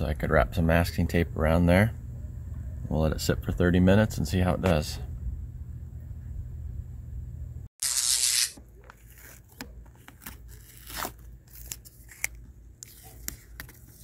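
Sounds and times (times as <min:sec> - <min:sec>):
tape tearing off: 0:07.8 - 0:13.7.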